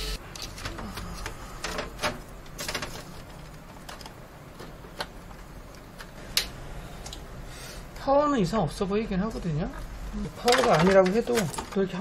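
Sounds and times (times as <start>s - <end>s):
hands tapping computer parts: 0.4s - 6.5s, 10.4s - 11.9s.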